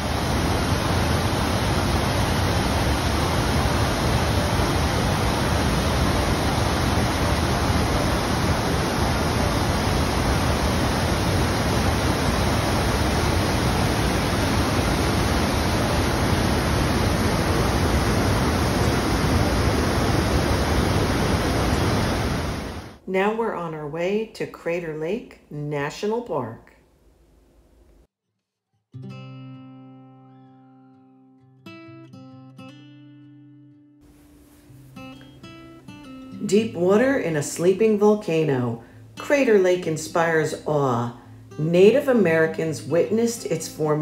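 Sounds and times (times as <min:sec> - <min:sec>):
whitewater rushing through gorge: 0:00.0 - 0:23.0.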